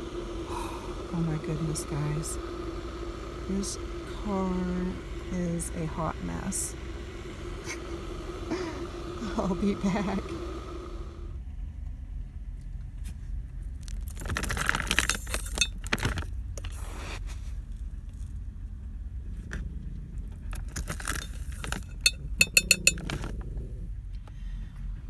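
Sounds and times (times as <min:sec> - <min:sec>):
steady low hum: 0:00.0 - 0:25.0
handling and rustling noises: 0:13.8 - 0:18.4
clinks against ceramic mug: 0:21.1 - 0:23.2.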